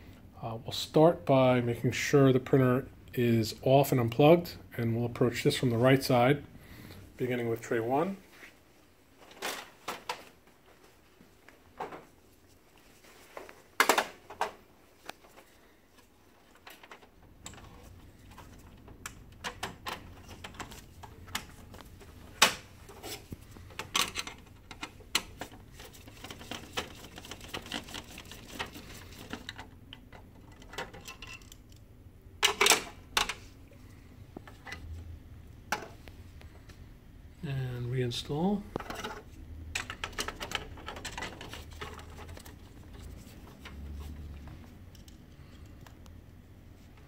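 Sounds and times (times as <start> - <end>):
plastic and metal parts clicking: 23.6 - 31.8.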